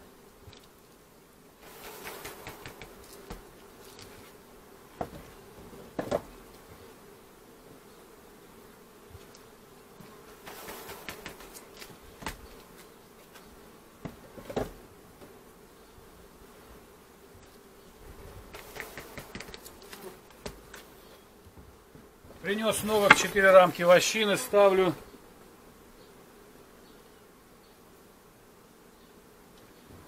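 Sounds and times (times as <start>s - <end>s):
bees buzzing: 0.0s - 30.0s
wooden frame knocking on hive: 2.1s - 3.5s, 21.5s - 23.8s
rustling of handled frame: 22.4s - 23.5s.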